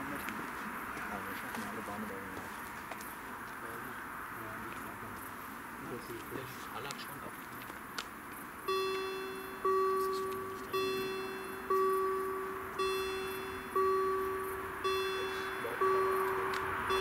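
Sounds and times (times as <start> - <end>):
level crossing warning bell: 8.6 - 17.0.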